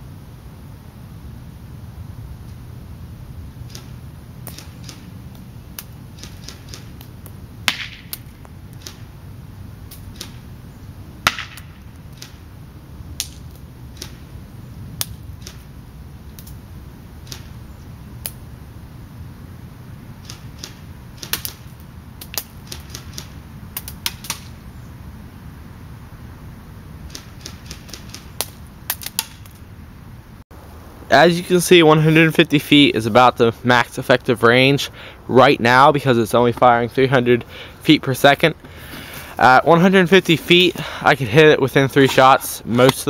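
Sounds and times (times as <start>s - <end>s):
airsoft pellets hitting board: 7.7s - 9.0s, 11.3s - 12.3s.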